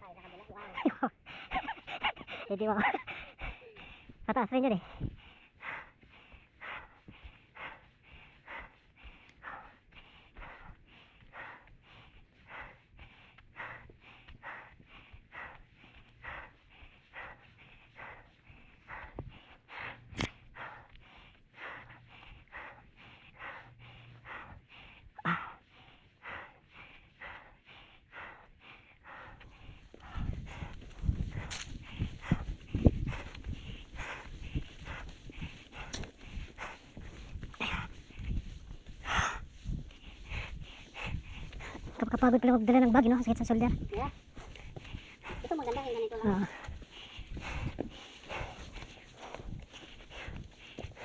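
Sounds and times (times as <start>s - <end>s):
person breathing hard: 0.0s - 51.0s.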